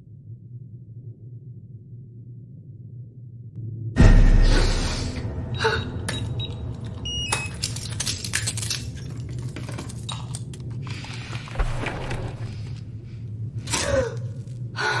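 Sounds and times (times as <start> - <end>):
deep boom: 4.0 - 6.5.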